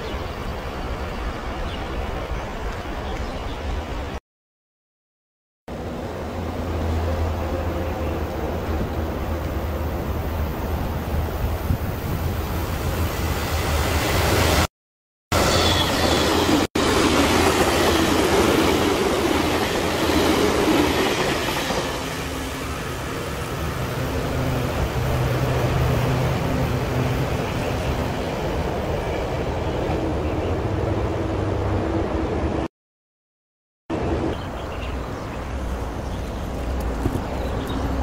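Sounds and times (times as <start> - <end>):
electric train passing: 5.7 - 14.7, 15.3 - 32.7.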